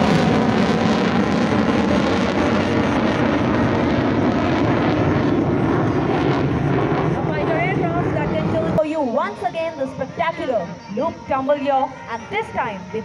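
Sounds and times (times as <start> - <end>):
fighter jet flying past: 0.0 - 9.1.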